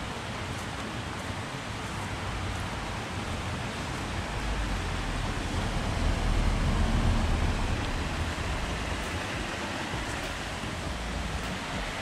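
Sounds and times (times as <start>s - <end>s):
flowing water rushing: 0.0s - 12.0s
low rumble: 4.3s - 12.0s.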